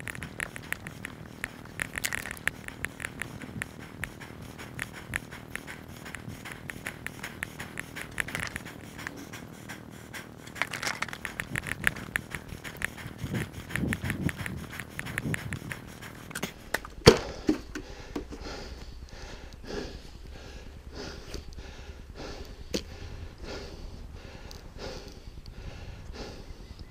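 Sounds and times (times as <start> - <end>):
sniffing: 0.0 - 26.6
heavy breathing: 0.0 - 26.9
rustling: 10.4 - 16.2.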